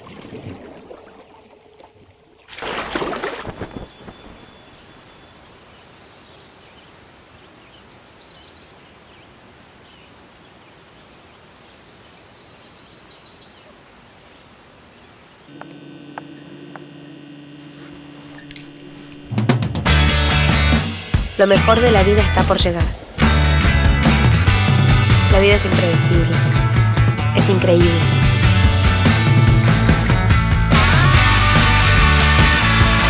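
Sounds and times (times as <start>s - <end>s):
water splash: 0.0s - 5.3s
birds chirping: 3.3s - 16.9s, 20.4s - 24.5s
low steady hum: 13.8s - 19.5s.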